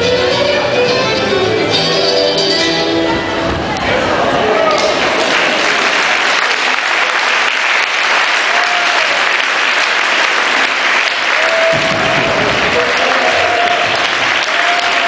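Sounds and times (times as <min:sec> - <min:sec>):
crowd applauding: 0:03.6 - 0:15.0.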